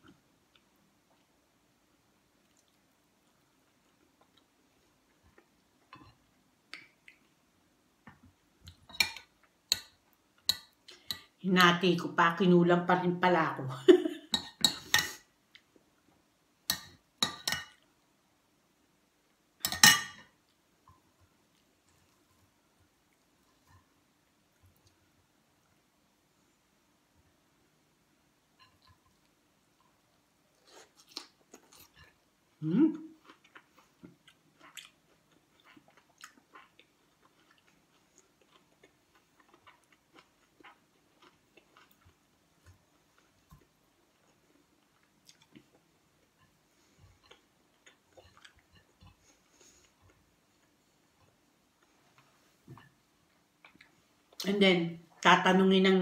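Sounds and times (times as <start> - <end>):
cutlery clinking against dishes: 8.9 - 11.2, 16.7 - 17.8, 19.6 - 20.3
person chewing wetly: 33.1 - 51.4.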